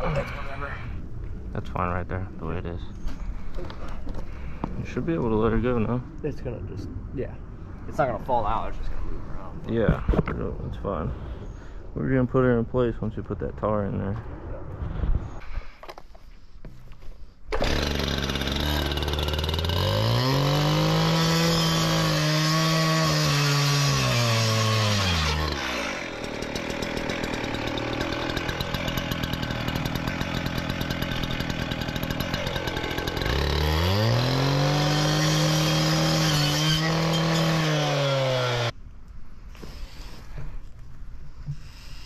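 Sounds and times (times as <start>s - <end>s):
cut-off saw cutting plastic pipe: 17.5s - 26.7s, 32.1s - 38.7s.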